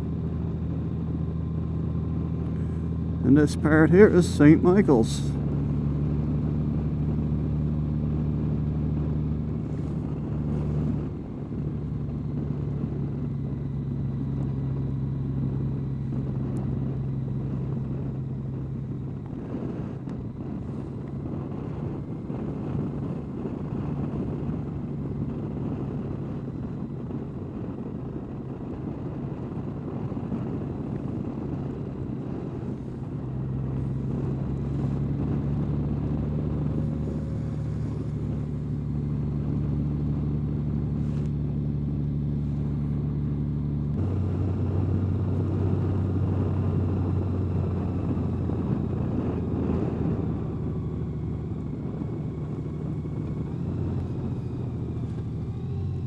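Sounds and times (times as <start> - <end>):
motorcycle engine running: 0.0 - 56.0
wind and road noise: 0.0 - 56.0.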